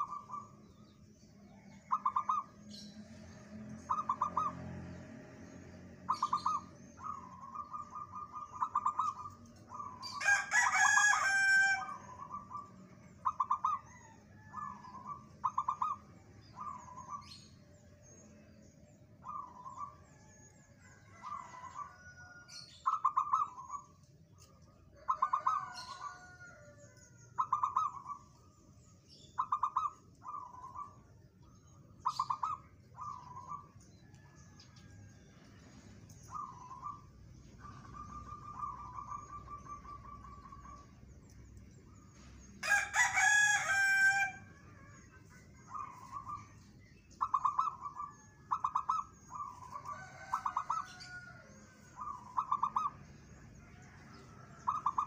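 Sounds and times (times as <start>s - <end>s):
small birds chirping: 0.0s - 55.0s
dove cooing: 3.9s - 4.6s, 6.1s - 17.4s, 21.1s - 23.9s, 25.0s - 26.6s, 27.4s - 28.3s, 29.4s - 31.0s, 36.3s - 40.9s, 47.2s - 51.4s, 52.0s - 53.0s, 54.5s - 55.0s.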